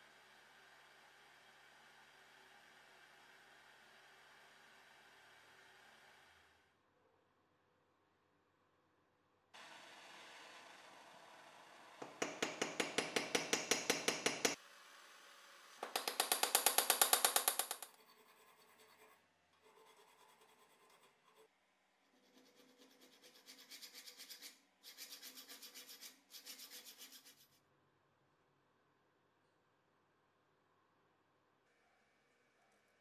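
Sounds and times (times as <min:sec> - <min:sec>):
hammer tapping copper: 0:12.0 - 0:14.6, 0:15.8 - 0:17.9
file rasping on metal: 0:17.9 - 0:21.5, 0:22.1 - 0:27.6.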